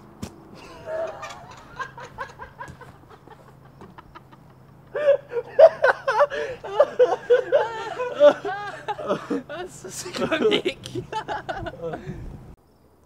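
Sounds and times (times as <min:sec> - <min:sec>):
person laughing: 0:00.6 - 0:12.3.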